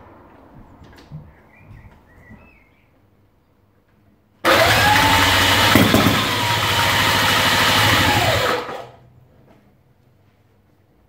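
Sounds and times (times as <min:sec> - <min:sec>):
motorcycle engine spun by roller starter: 0:04.4 - 0:09.0.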